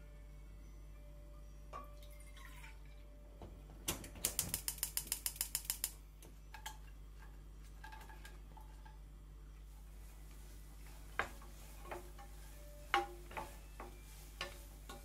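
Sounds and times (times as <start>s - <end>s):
gas burner igniter clicking: 3.9s - 6.0s.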